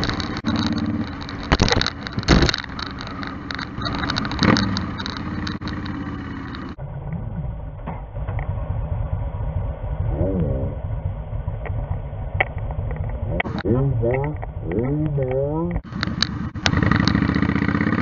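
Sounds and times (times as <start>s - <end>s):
motorcycle engine running: 0.0s - 18.0s
wind noise: 6.8s - 16.9s.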